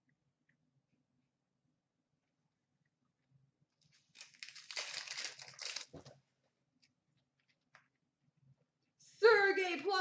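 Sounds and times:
wrapper tearing and crinkling: 4.0 - 6.2.

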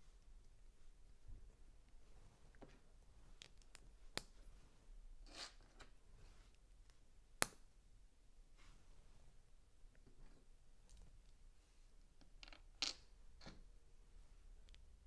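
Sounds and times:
soft rustle: 0.0 - 6.8, 8.4 - 12.1.

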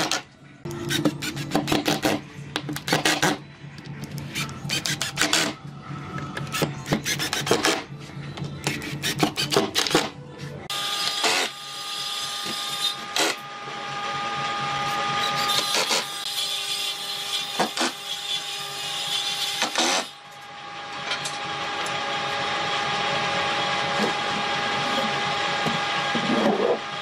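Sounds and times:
power tool whining: 10.7 - 27.0.

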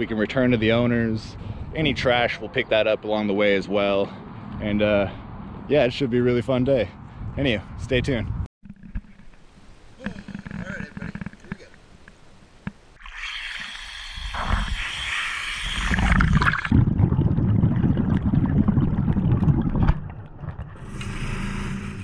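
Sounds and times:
water splashing: 12.9 - 21.7
underwater bubbling: 13.0 - 21.9.

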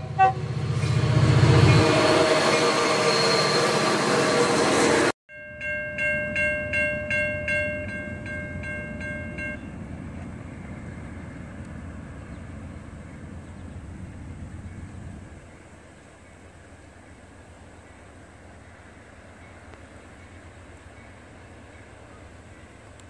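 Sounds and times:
freight train cars rolling past: 0.0 - 23.0
crossing bell ringing: 5.3 - 9.9.

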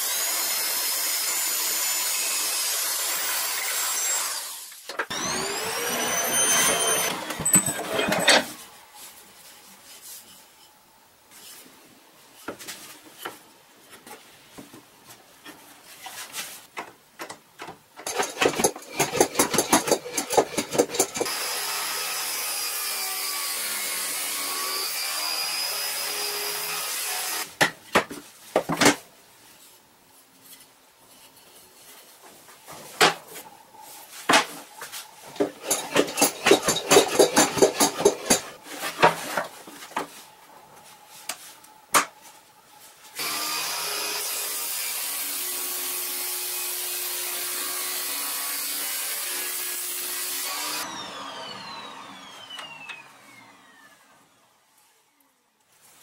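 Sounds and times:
table saw motor running: 5.1 - 8.2, 50.2 - 54.1
clamps and wood knocking: 6.4 - 8.5, 16.8 - 21.2, 35.4 - 39.2.

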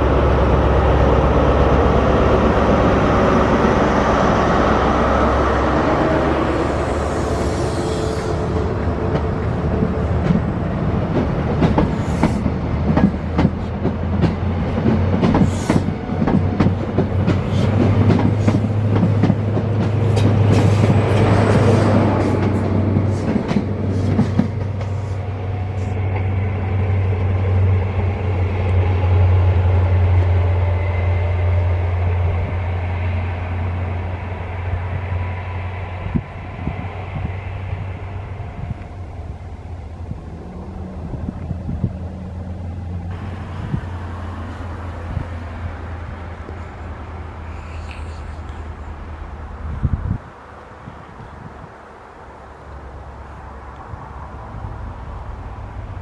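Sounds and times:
diesel engine drone: 0.0 - 56.0
train coaches rumbling past: 0.0 - 56.0
wheels clicking over rail joints: 8.6 - 26.4.

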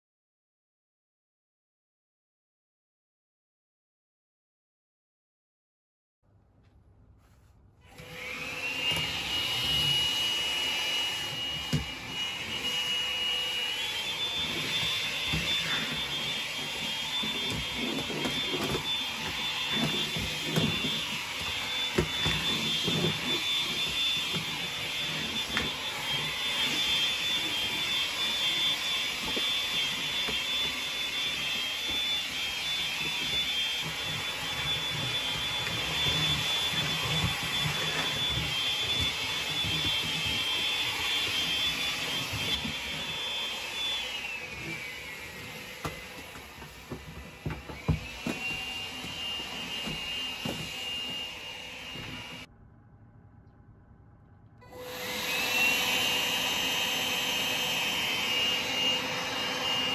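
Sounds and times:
stick vacuum whining: 7.8 - 52.5, 54.6 - 59.9.

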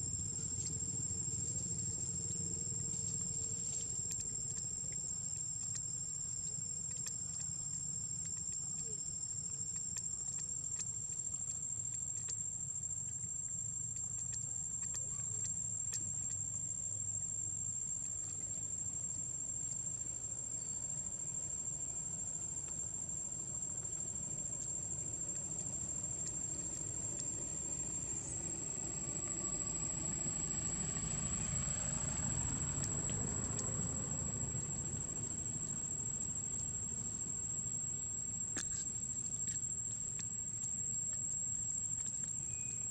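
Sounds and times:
high-pitched insect drone: 26.5 - 40.0, 41.9 - 42.9.

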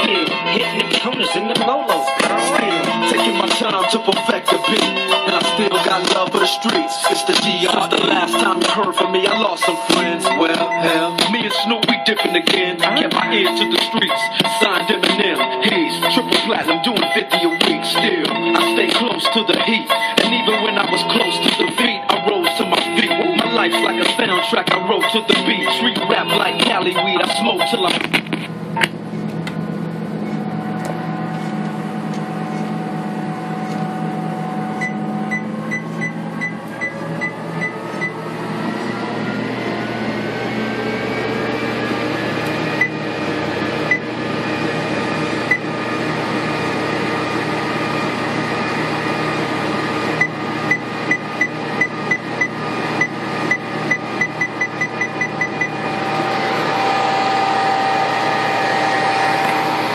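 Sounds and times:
treadmill belt whine rising: 28.4 - 59.9
treadmill motor hum: 28.5 - 59.9.

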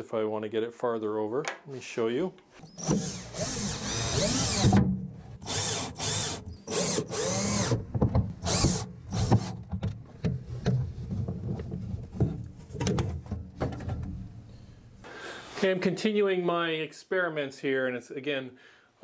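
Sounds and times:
cordless drill whining: 2.6 - 4.8, 5.4 - 7.8, 8.4 - 9.6.

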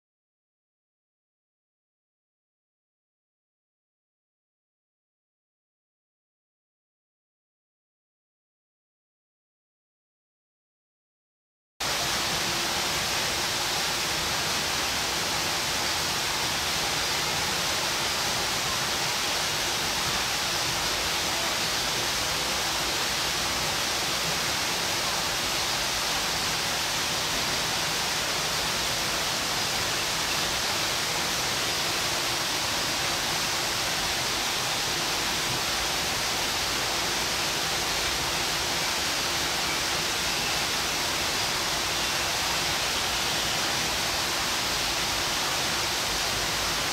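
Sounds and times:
steady rushing noise: 11.8 - 46.9.

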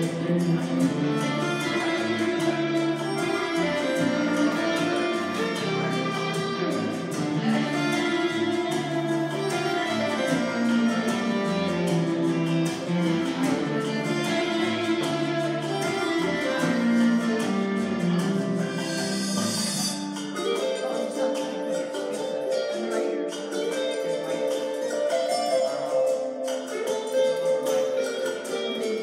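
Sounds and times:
bass notes: 0.0 - 20.0
electric guitar melody: 0.0 - 29.0.

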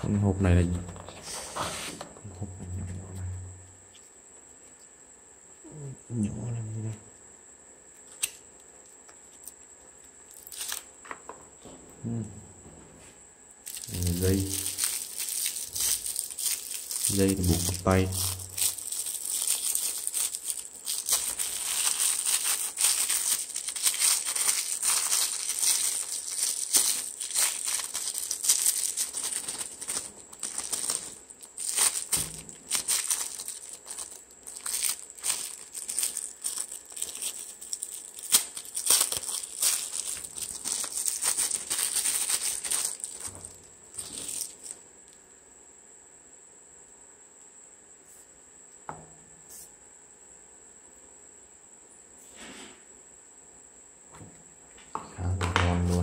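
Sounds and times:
plastic bag crinkling: 13.6 - 44.8.

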